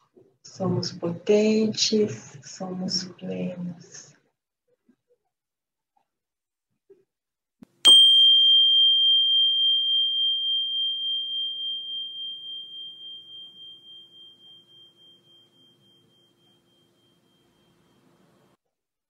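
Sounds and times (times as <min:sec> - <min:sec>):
meditation chime ringing: 0:07.9 - 0:18.6.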